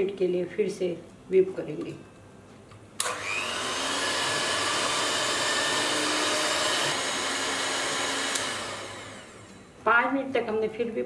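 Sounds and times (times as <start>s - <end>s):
electric hand mixer whining: 3.0s - 9.6s.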